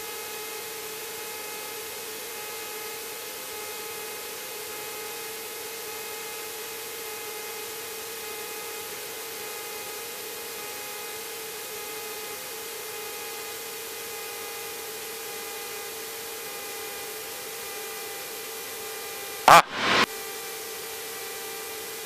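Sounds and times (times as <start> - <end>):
faint aircraft engine: 0.0 - 22.0
intercom hiss and hum: 19.5 - 20.1.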